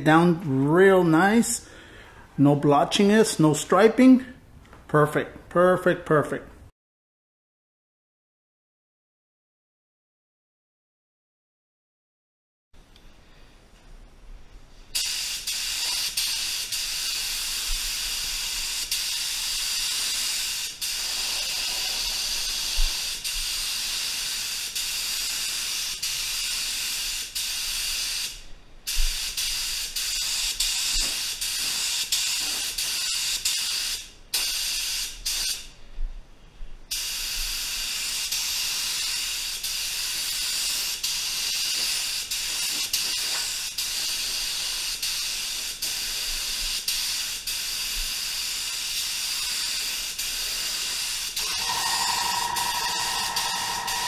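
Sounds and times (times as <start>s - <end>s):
spray gun hissing: 15.0s - 28.3s, 37.0s - 54.0s.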